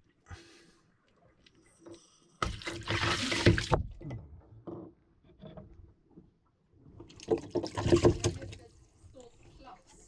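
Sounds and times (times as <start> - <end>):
small splashes and knocks: 2.4 - 4.3, 6.9 - 8.8
sea water gushing: 2.6 - 3.8.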